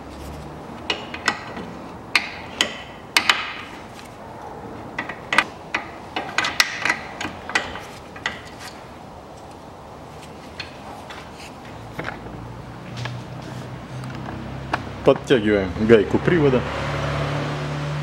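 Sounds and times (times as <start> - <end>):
wrench clicking on a nut: 0.9 - 3.6, 5.0 - 8.6.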